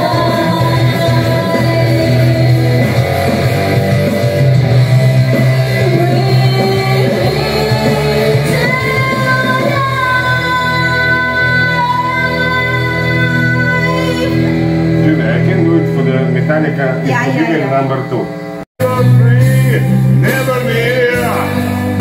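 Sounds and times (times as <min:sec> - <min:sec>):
woman singing into microphone: 0:00.0 - 0:03.3, 0:05.7 - 0:14.6
karaoke music: 0:00.0 - 0:22.0.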